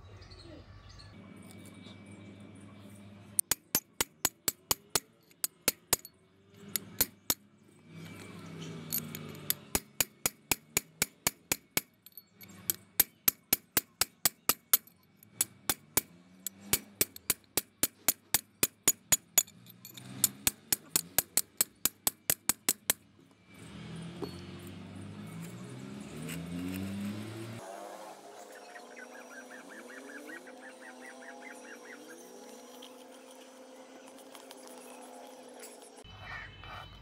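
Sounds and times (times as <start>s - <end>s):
metal parts being handled: 3.4s - 7.4s, 8.0s - 22.8s.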